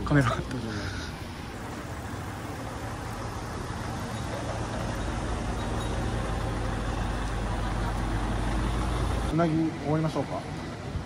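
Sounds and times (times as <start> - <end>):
vehicle engine rumbling: 0.0 - 11.0.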